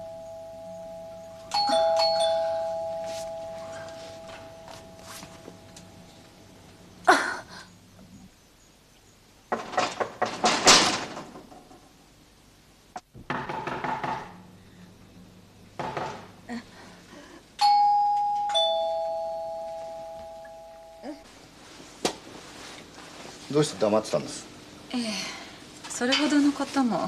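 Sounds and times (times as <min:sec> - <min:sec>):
two-tone door chime: 0:00.0 - 0:06.2, 0:17.6 - 0:21.2
rustling: 0:01.4 - 0:06.8, 0:21.2 - 0:24.1.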